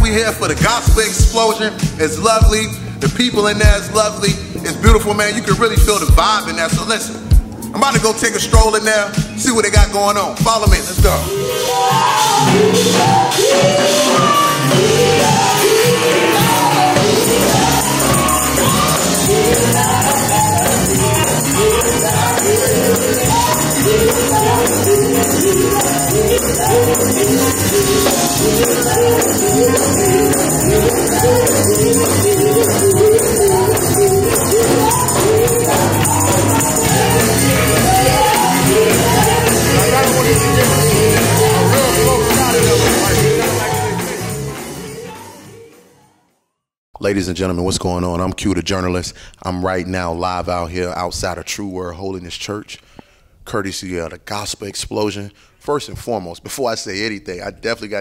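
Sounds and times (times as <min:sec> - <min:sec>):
musical accompaniment: 0:00.0 - 0:45.8
backing voices singing: 0:10.6 - 0:46.1
woman singing gospel lead: 0:10.8 - 0:45.8.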